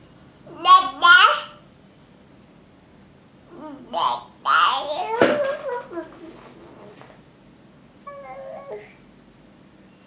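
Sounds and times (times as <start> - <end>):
toddler babbling: 0.5 - 1.6, 3.5 - 7.1, 8.1 - 9.0.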